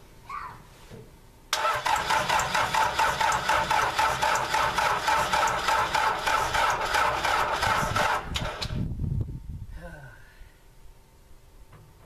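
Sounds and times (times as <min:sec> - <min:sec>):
starter cranking diesel engine: 0:01.5 - 0:08.8.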